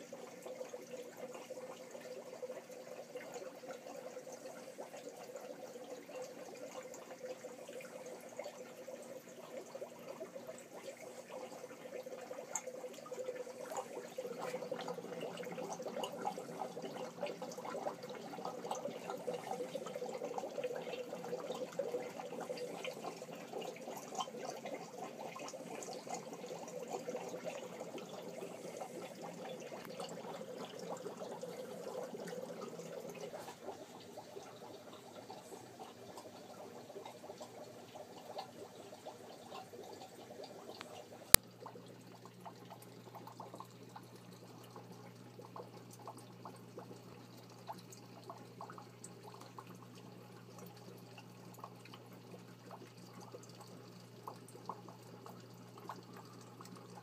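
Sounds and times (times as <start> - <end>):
aquarium water bubbling: 0.0 - 57.0.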